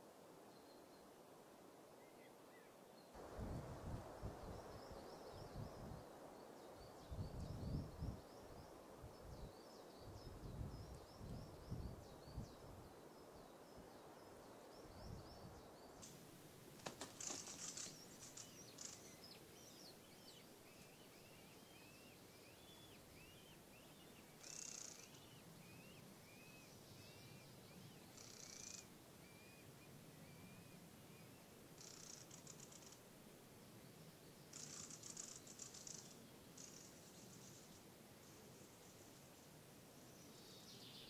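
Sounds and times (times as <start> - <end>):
bird chirps and calls: 17.2 - 30.8, 34.5 - 37.7.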